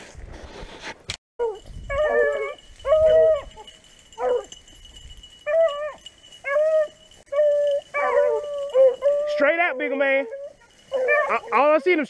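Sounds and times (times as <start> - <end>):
dogs barking: 4.2 - 4.6, 10.4 - 11.8.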